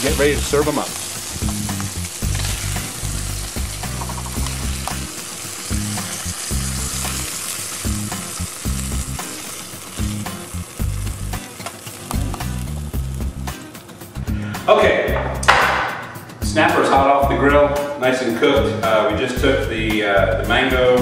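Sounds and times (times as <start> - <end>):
fish sizzling in hot oil: 0.0 - 14.2.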